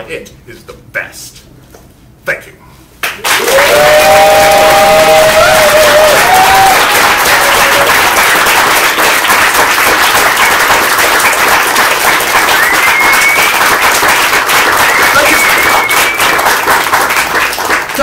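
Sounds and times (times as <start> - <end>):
audience applauding: 3.0 - 18.0
people cheering: 3.2 - 17.5.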